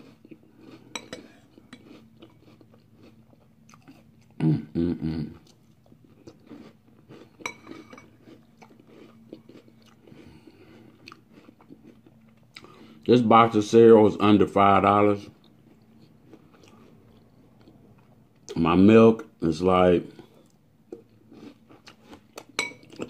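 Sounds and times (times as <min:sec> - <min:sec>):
chewing crunchy cereal: 0:00.0 - 0:04.4, 0:05.3 - 0:13.1, 0:15.2 - 0:18.6, 0:20.2 - 0:23.0
person humming: 0:04.4 - 0:05.4.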